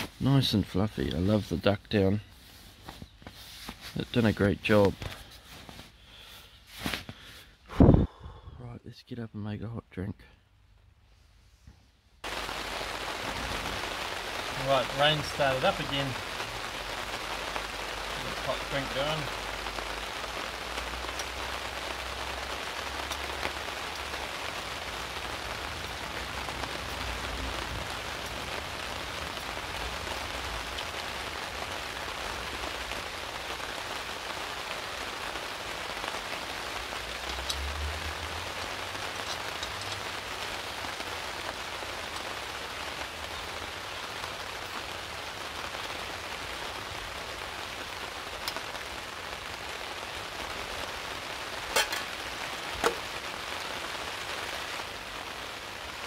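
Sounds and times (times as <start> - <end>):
rain on a tarp: 0.0 - 8.4, 11.6 - 56.0.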